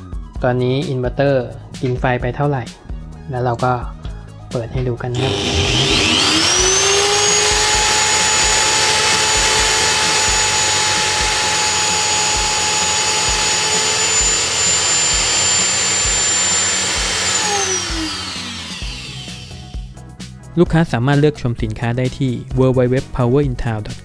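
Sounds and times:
electric drill whining: 5.1s - 20.0s.

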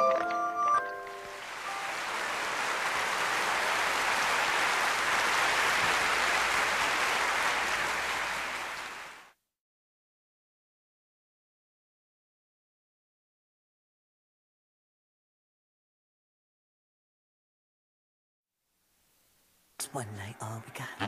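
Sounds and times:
audience applause: 1.0s - 9.4s.

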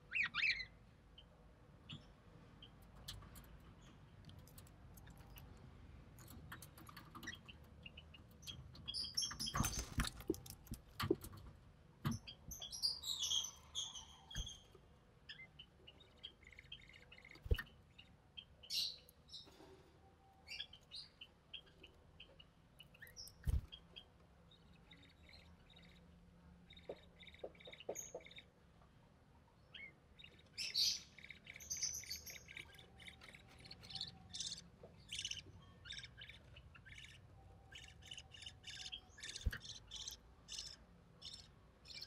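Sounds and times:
budgerigars chirping and squeaking: 0.1s - 0.7s, 6.5s - 10.6s, 12.1s - 14.7s, 26.7s - 28.4s, 29.8s - 42.0s.

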